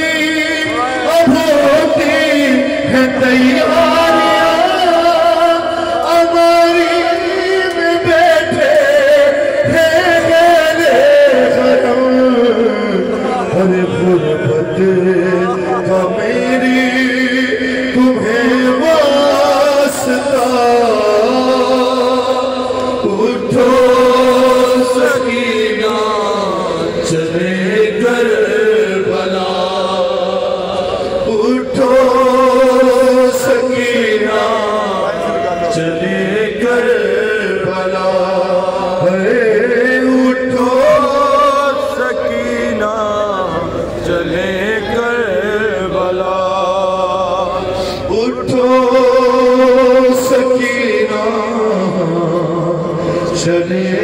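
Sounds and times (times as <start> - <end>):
man chanting into a microphone: 0.0 - 54.0.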